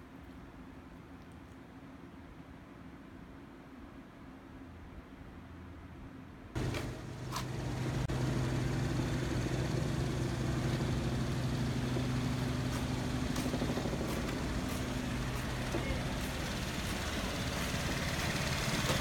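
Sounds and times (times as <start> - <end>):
engine idling hum: 6.6 - 19.0.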